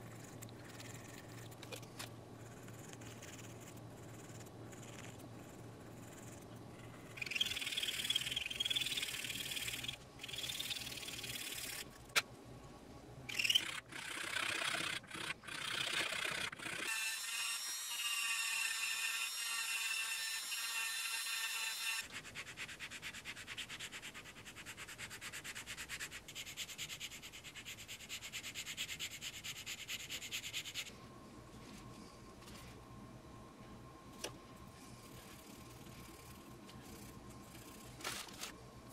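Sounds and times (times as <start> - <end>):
fast even rasp: 2.4 - 11.9, 13.3 - 17.1
rotary tool whine: 13.3 - 22.0.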